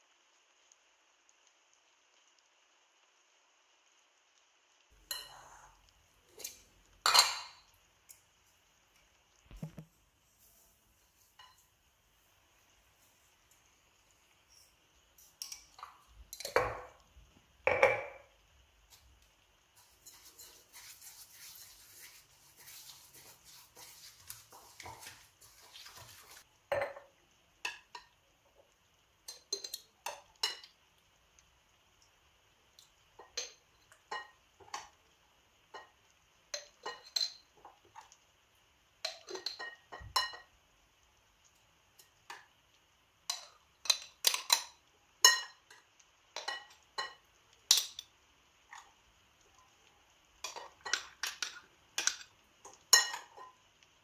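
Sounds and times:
spoon scraping: 0:19.8 - 0:26.4.

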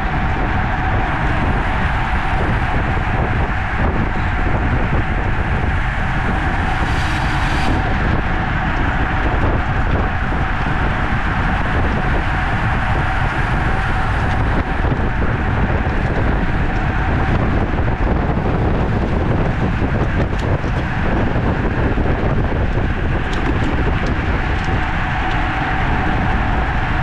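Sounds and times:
low rumble: 0:00.0 - 0:27.0
steady hum: 0:00.0 - 0:27.0
wind rushing over microphone: 0:00.0 - 0:27.0.

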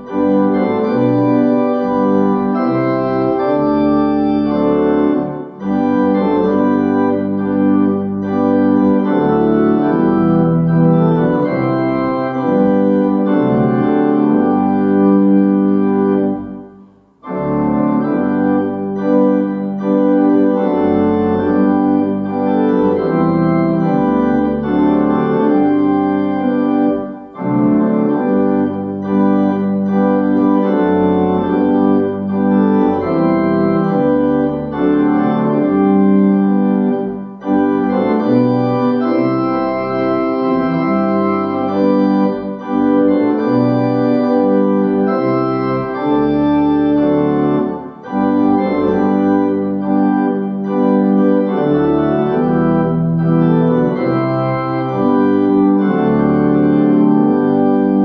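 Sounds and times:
organ playing a hymn: 0:00.0 - 0:58.0.

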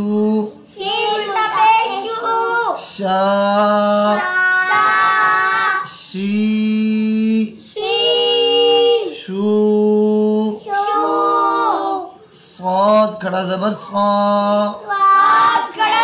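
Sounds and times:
voices chanting syllables: 0:00.0 - 0:16.0
children's voices chanting: 0:00.7 - 0:06.0, 0:07.6 - 0:09.4, 0:10.4 - 0:12.4, 0:13.8 - 0:16.0.

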